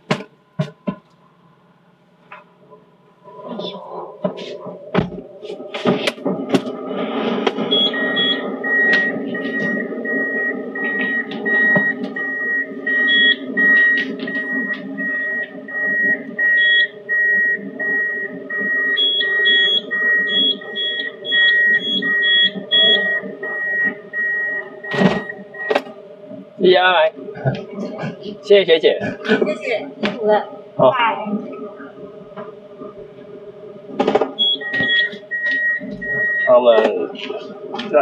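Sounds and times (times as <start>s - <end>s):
low cabin noise: 0.0s - 38.0s
car warning chime beeping: 7.6s - 25.9s, 34.3s - 36.9s.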